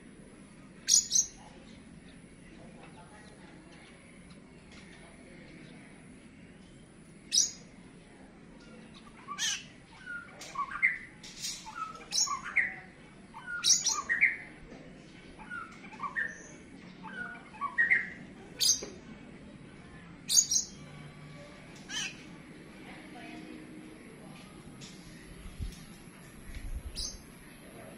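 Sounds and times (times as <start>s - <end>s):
bird whistled song: 0.9s - 1.4s, 7.3s - 7.6s, 9.3s - 12.8s, 13.4s - 14.4s, 15.4s - 18.8s, 20.3s - 20.8s, 26.9s - 27.2s
harsh scratchy bird calls: 9.3s - 12.7s, 21.8s - 22.3s.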